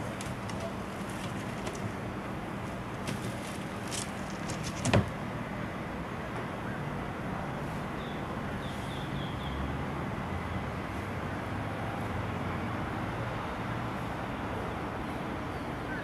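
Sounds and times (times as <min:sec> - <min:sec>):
clicks and rustles in trash can: 0:00.0 - 0:01.9, 0:03.0 - 0:05.2
distant traffic hum: 0:00.0 - 0:16.0.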